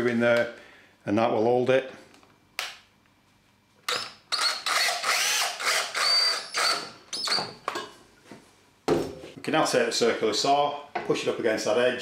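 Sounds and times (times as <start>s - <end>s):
drill motor whining: 3.9s - 7.5s.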